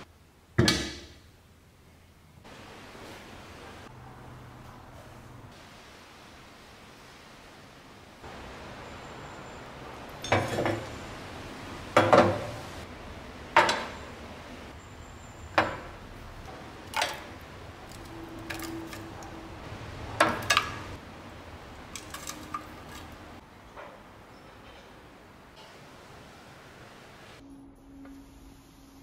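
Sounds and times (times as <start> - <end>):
metal tongs clanking on iron: 10.2 - 10.9, 20.2 - 21.0.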